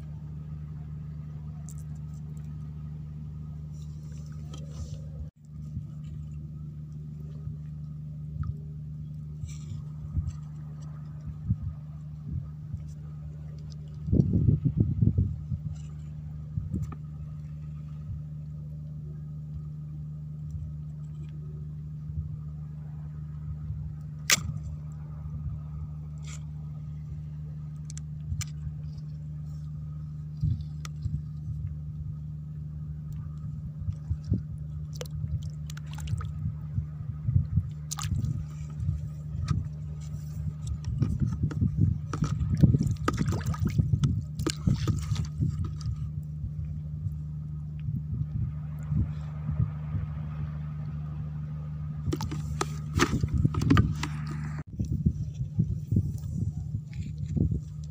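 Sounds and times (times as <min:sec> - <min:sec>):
steady low hum: 0:00.0 - 0:57.9
stick splashing in shallow water: 0:24.2 - 0:25.0, 0:27.7 - 0:31.4, 0:33.9 - 0:36.4, 0:37.6 - 0:46.2, 0:52.1 - 0:54.6.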